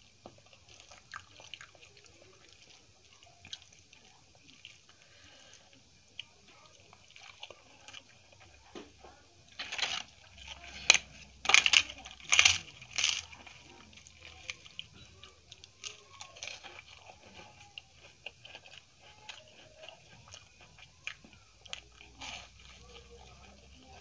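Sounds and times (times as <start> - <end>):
wet chewing: 0.0 - 24.0
loud crisp crunches: 9.5 - 14.9.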